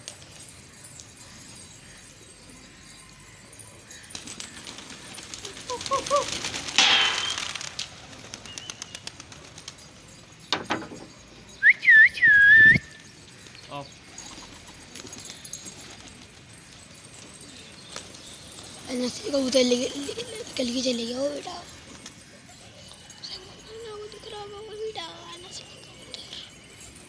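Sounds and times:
pigeon wings flapping: 4.1 - 10.0
sharp knock: 6.8 - 7.4
loud whistle: 11.6 - 12.8.

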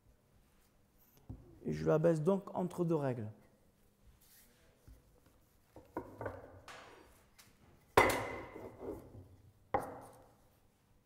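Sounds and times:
rolling pin knocking on metal and wood: 8.0 - 9.0.

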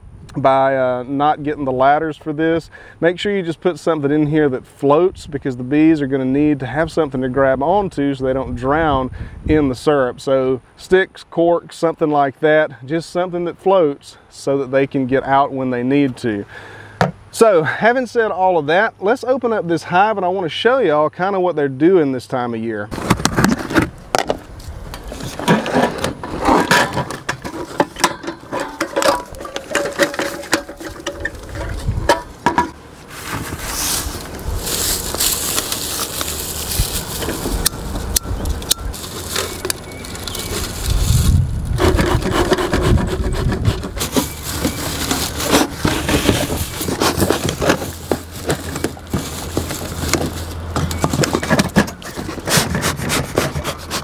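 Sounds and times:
dry pine straw rustling: 22.9 - 53.9.

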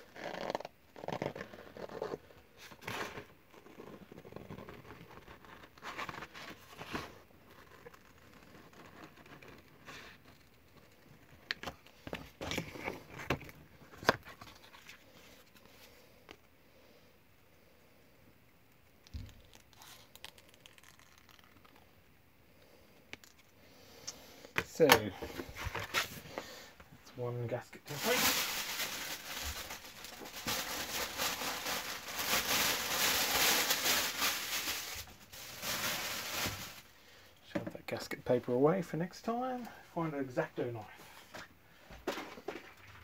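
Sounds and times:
paper crinkling: 1.0 - 15.8, 27.9 - 36.9.

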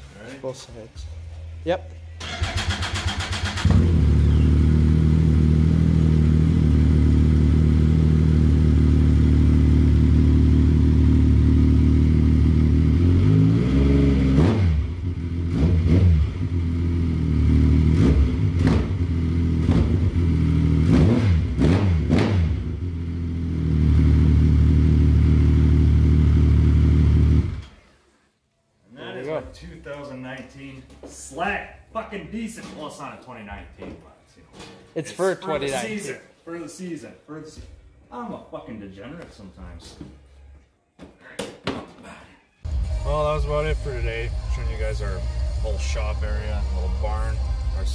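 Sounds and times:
engine revving and throttle blips: 2.3 - 27.7.

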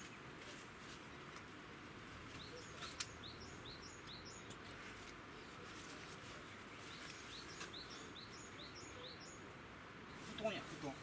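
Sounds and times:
faint outdoor background noise: 0.0 - 11.0
small bird chirping: 2.3 - 4.6, 5.4 - 9.5.

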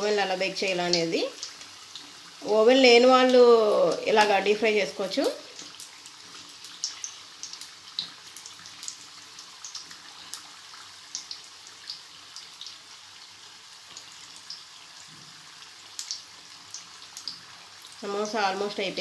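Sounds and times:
deep-frying oil sizzle: 0.0 - 19.0.

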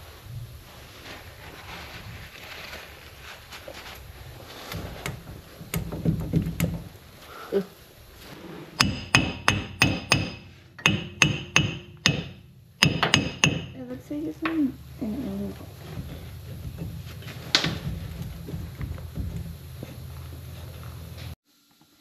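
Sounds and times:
hammer ringing on metal: 8.8 - 19.6
low clunks of wheel hub: 8.8 - 21.4.

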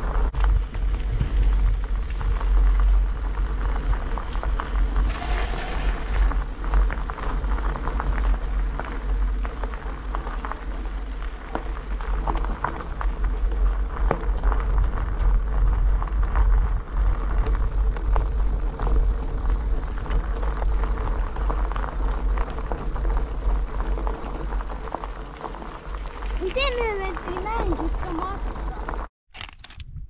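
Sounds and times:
tyres crunching over gravel: 0.0 - 29.1
wind rumble on microphone: 0.0 - 30.0.

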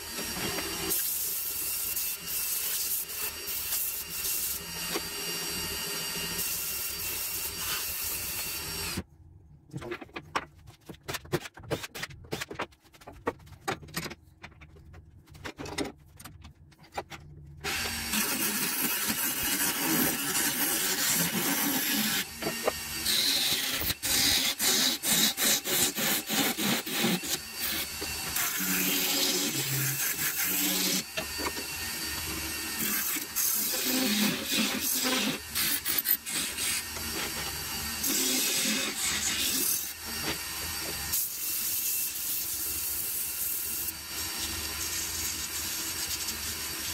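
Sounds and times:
scattered clicks and knocks: 9.7 - 17.6
turning tool cutting spinning wood: 17.6 - 41.2.

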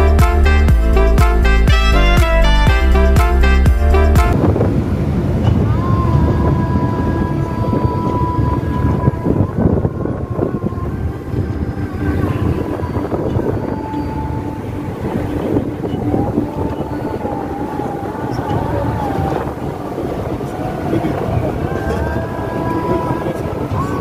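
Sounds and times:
wind noise: 0.0 - 24.0
faint wavering tone: 5.4 - 24.0.

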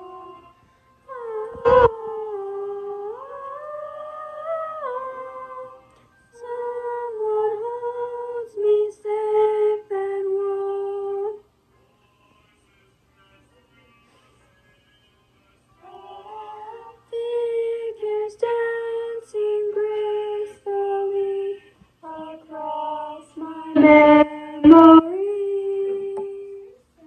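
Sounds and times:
girl singing alone: 0.0 - 0.4, 1.1 - 11.4, 17.0 - 26.7.

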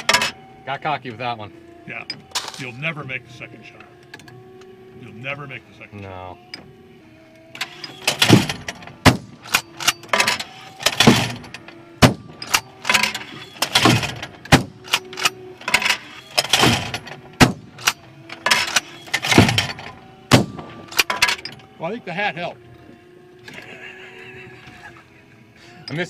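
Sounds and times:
echoing shotgun blasts: 20.3 - 20.9.

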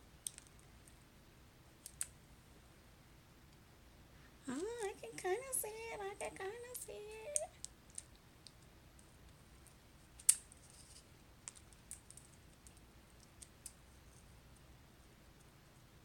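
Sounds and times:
small clicks and taps: 0.2 - 1.0.

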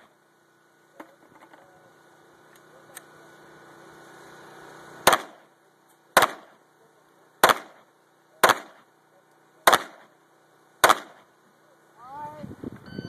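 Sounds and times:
pistol shots with echo: 5.1 - 5.4, 6.2 - 6.5, 7.4 - 7.8, 8.4 - 8.8, 9.6 - 10.1, 10.8 - 11.2.

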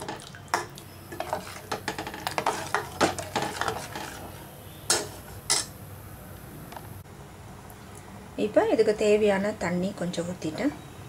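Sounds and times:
metal spoon scraping a pot: 1.1 - 5.7.

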